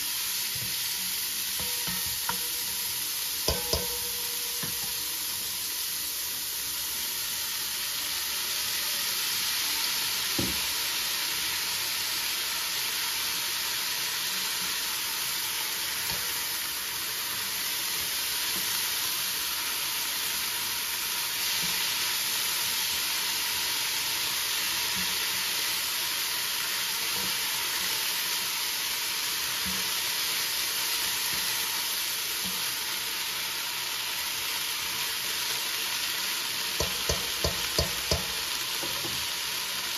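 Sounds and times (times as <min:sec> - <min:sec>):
beans sizzling in a pot: 0:00.0 - 0:39.9
spoon knocking against a pot: 0:01.6 - 0:02.7, 0:03.4 - 0:05.1, 0:36.8 - 0:39.2.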